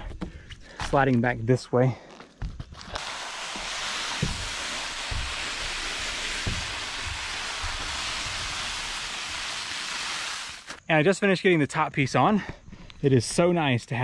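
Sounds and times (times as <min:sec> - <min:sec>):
dull thumps: 0:02.3 - 0:08.6
roofing sheet unrolling hiss: 0:02.6 - 0:10.8.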